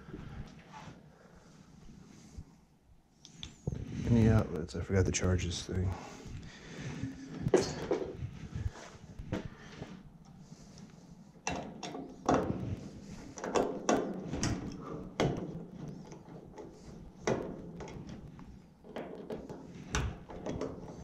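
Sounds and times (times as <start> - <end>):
tools knocking and rattling: 11.4 - 12.7, 13.3 - 21.0.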